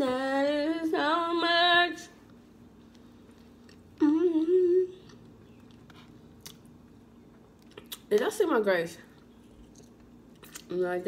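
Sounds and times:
chewing food: 2.9s - 8.2s
woman humming: 4.0s - 5.2s.

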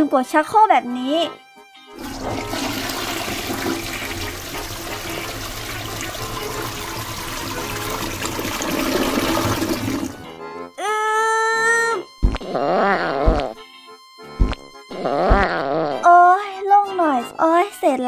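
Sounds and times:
toilet flush rushing water: 2.0s - 10.3s.

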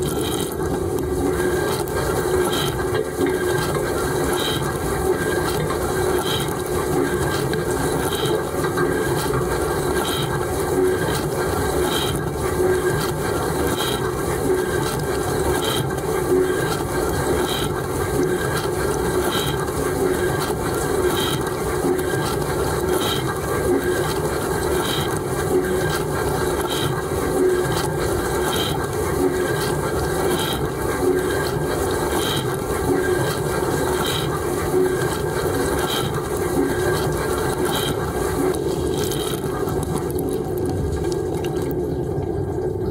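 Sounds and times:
dishwasher pump running: 0.0s - 42.9s.

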